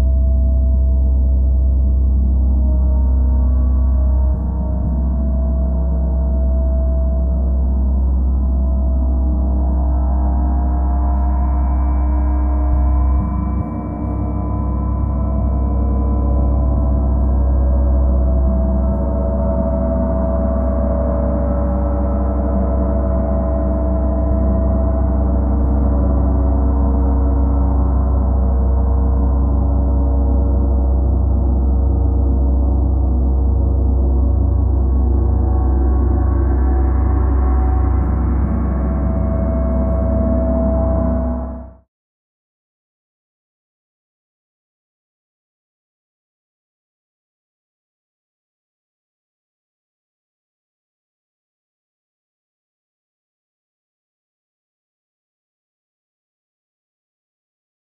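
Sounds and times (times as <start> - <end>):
deep hum: 0.0 - 41.9.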